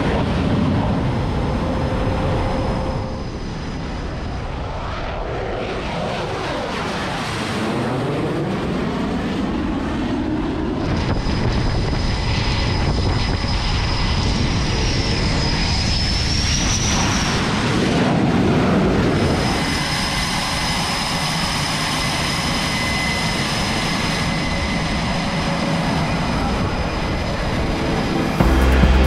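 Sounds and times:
high jet whine: 0.0 - 6.8, 18.9 - 29.0
jet engine noise: 0.0 - 29.0
low rumble: 26.7 - 29.0.

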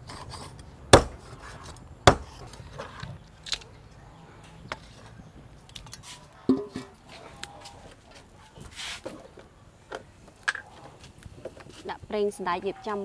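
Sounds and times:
cleaver chopping on wooden board: 1.0 - 1.2, 2.1 - 2.4.

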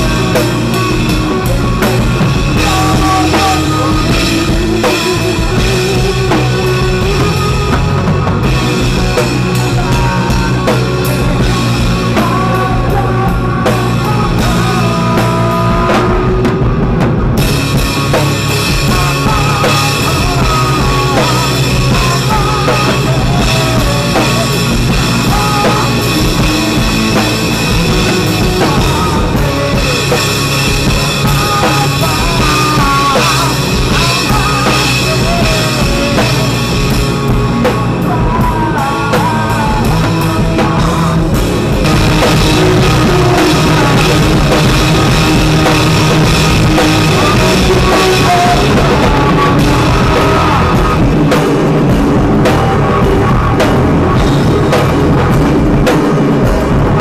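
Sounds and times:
loud rock music with drums: 0.0 - 57.0.

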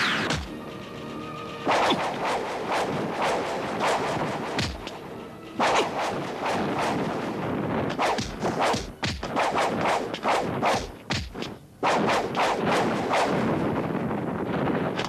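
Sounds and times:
heavy thuds and blasts: 1.6 - 5.0
fight whooshes: 1.6 - 11.0, 11.8 - 13.6.

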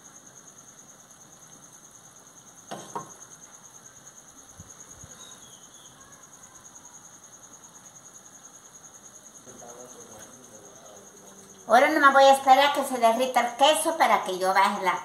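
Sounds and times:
insect chirping: 0.0 - 15.0
sharp knocks: 2.7 - 3.2.

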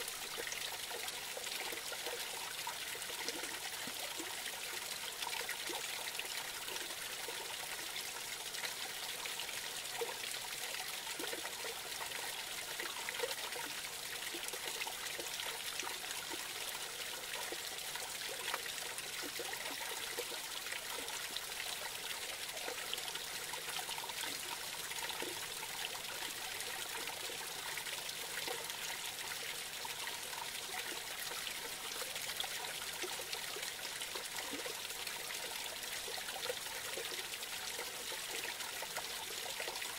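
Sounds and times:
creek babbling over cascade: 0.0 - 39.9.

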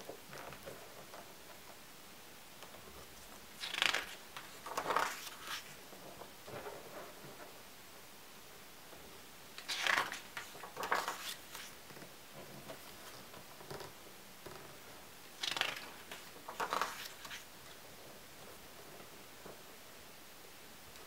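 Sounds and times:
book pages turning: 3.6 - 5.8, 9.6 - 13.9, 15.4 - 17.5.

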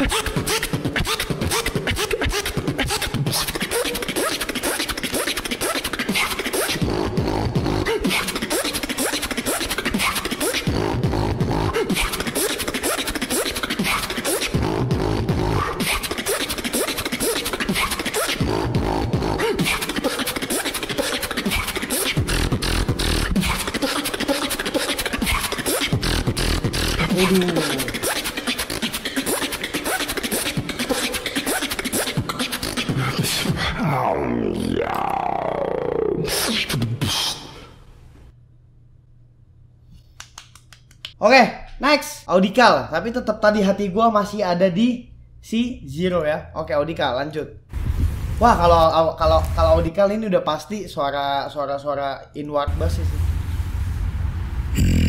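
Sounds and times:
beatboxed deep bass notes: 0.0 - 37.5, 47.8 - 50.1, 54.7 - 55.0
beatboxing drum sounds: 0.0 - 37.7, 48.4 - 50.0, 54.8 - 55.0.

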